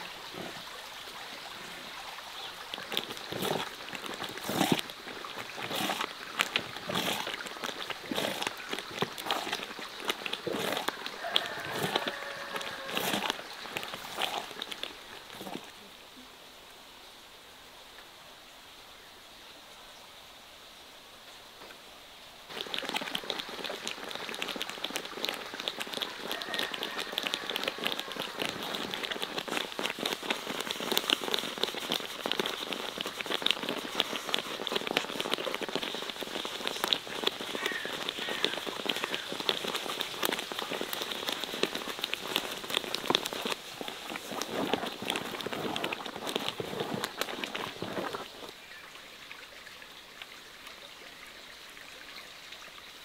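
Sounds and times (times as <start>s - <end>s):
thick sauce bubbling and popping: 2.4s - 15.8s, 22.5s - 48.6s.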